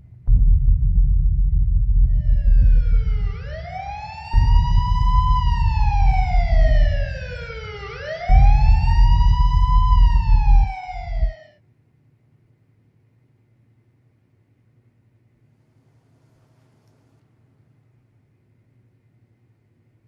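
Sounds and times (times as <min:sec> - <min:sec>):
heavy low rumble: 0:00.0 - 0:11.4
siren wailing: 0:02.1 - 0:11.6.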